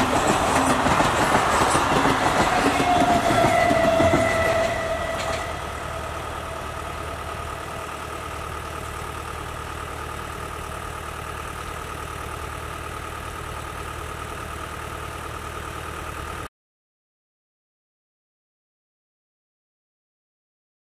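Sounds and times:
thin even whine: 0:00.0 - 0:08.4
machine hum: 0:00.0 - 0:10.0.

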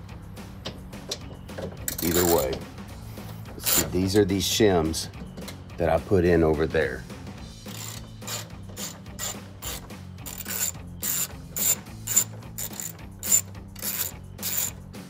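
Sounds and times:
socket ratchet clicking: 0:07.7 - 0:14.8.

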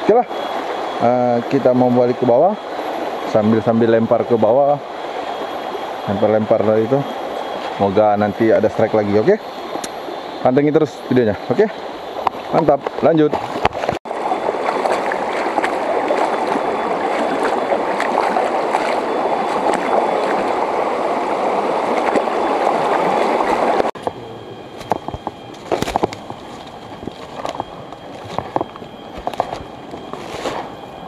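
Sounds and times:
stream water sloshing around legs: 0:11.6 - 0:24.1, 0:24.8 - 0:31.0
twigs crackling: 0:24.8 - 0:30.7
footsteps on leaf litter: 0:25.6 - 0:30.7.

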